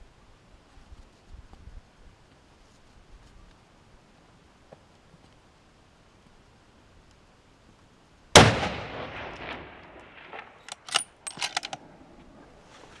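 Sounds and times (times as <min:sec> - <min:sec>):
rifle shot echoing: 0:08.3 - 0:12.1
sharp rifle clicks and clacks: 0:09.3 - 0:11.8.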